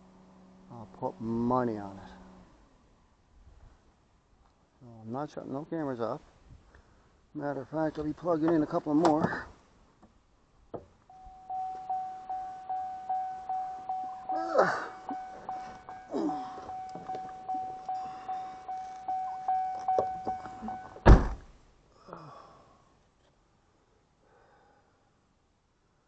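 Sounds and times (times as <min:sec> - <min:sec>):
car door warning chime: 0:11.1 - 0:21.2
car door slamming: 0:19.3 - 0:21.5.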